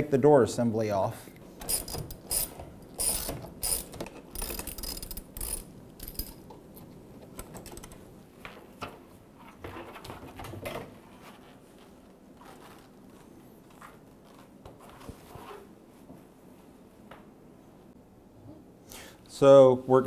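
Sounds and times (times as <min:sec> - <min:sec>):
socket ratchet clicking: 0:01.6 - 0:06.4
metal parts knocking and rattling: 0:01.6 - 0:06.6, 0:07.2 - 0:08.0.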